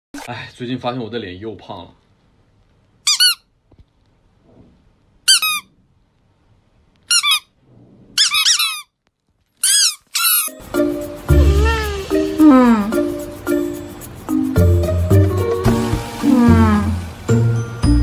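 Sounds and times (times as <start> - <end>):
squeaky toy squeaking: 3.0 - 3.5, 5.3 - 5.7, 7.1 - 7.6, 8.2 - 9.0, 9.6 - 10.6, 11.4 - 12.2.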